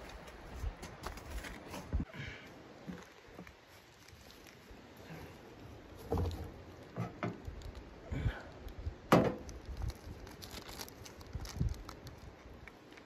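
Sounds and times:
camp gear knocking and rustling: 5.9 - 7.5, 9.1 - 9.5.

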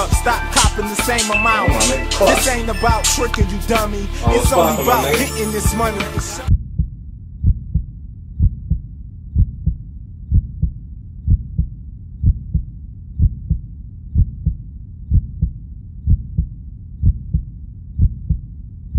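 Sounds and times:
heartbeat thumps: 5.7 - 18.5.

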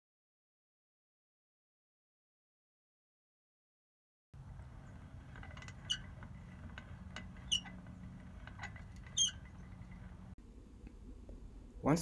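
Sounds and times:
short gear squeak: 4.6 - 10.3.

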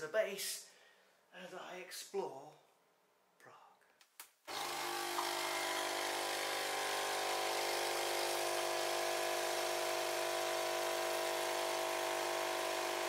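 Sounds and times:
coffee machine pump buzzing: 4.5 - 13.0.

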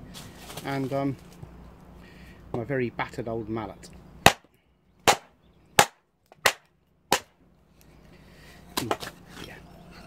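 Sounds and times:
mallet striking axe head: 4.2 - 4.4, 5.1 - 7.3.

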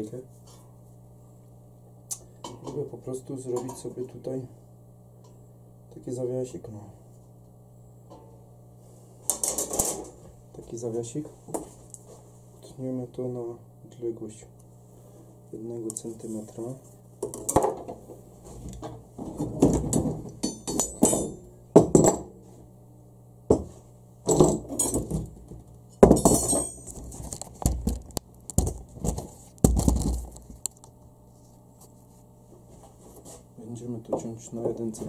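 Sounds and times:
metal clanking on workbench: 19.4 - 22.3.

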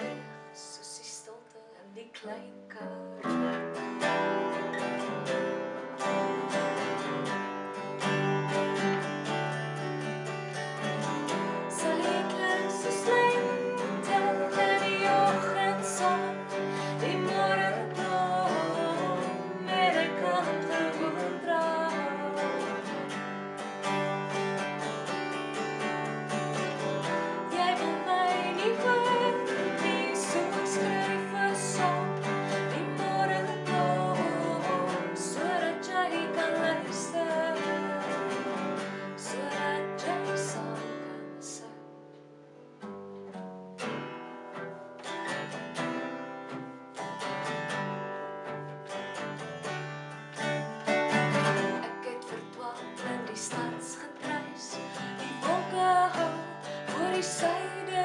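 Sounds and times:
acoustic guitars strumming: 0.0 - 1.2, 2.8 - 58.0
woman and man singing duet: 11.6 - 23.1, 27.4 - 41.8, 51.4 - 58.0.

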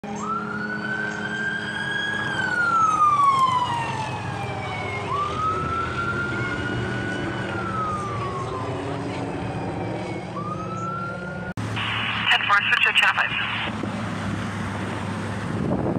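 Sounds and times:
police siren wailing: 0.0 - 13.7.

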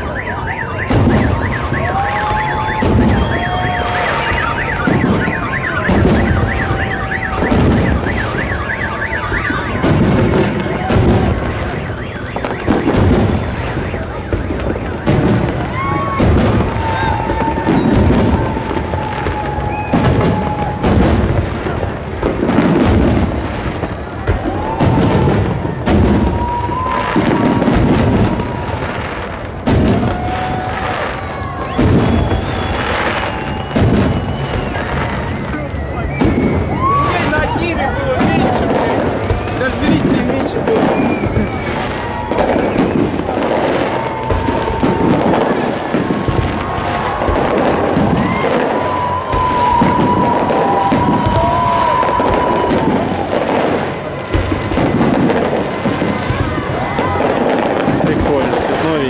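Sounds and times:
long whistling tones: 0.0 - 15.0, 15.6 - 21.0, 30.4 - 53.4
car alarm warbling: 0.0 - 15.5
crowd noise: 0.0 - 59.0
firework shells bursting: 0.0 - 59.0.

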